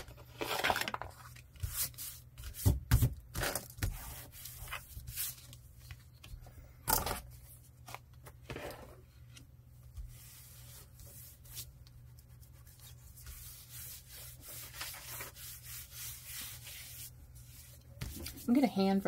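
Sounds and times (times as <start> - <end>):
paper rustling and scraping: 0.0 - 6.1, 10.0 - 18.6
low steady hum: 3.6 - 19.0.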